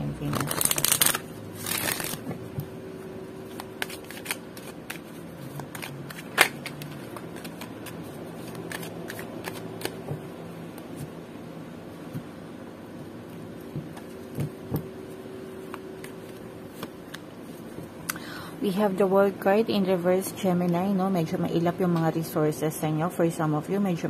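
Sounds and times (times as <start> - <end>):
cards shuffling: 0.2 - 2.4, 3.5 - 10.2.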